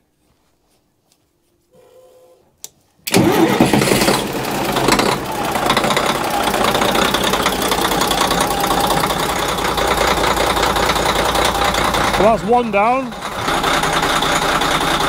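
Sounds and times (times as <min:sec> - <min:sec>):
click: 0:02.6 - 0:02.8
boat diesel engine starting: 0:03.0 - 0:15.0.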